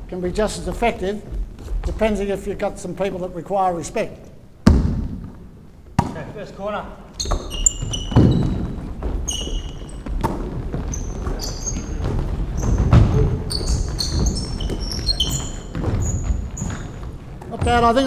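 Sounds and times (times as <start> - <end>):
sneakers squeaking on hardwood: 7.0 - 18.0
basketball bouncing: 7.2 - 18.0.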